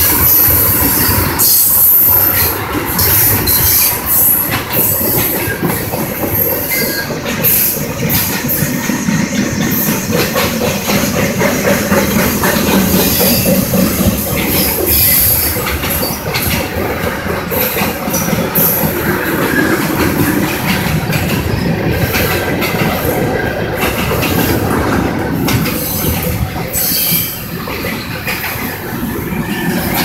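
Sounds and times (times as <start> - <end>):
freight train wheels rumbling: 0.0 - 30.0
wheel squeal: 0.1 - 10.2, 12.2 - 16.5, 25.6 - 28.7.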